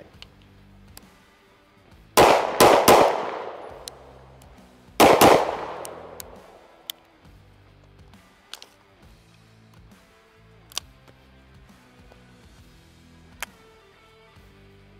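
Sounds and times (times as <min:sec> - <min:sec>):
pistol shots with echo: 0:02.2 - 0:04.4, 0:05.0 - 0:06.9.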